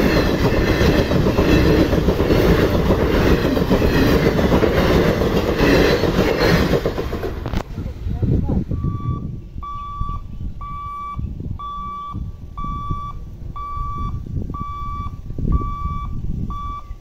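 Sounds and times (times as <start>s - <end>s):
crossing warning beeper: 8.7s - 17.0s.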